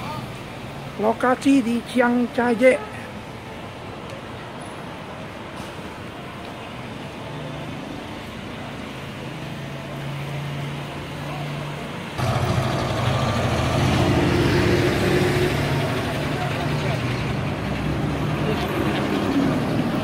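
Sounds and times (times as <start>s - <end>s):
road traffic passing: 0.0s - 20.0s
heavy vehicle engine running: 12.1s - 20.0s.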